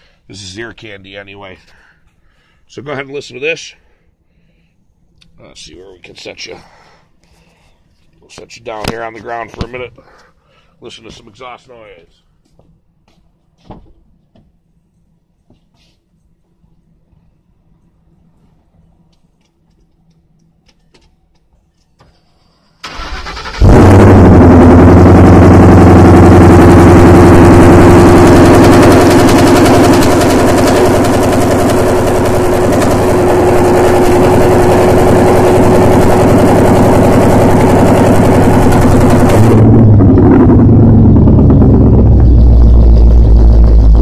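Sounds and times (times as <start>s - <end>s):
engine starter cranking: 22.8s - 24.3s
loud car engine idling: 23.6s - 44.0s.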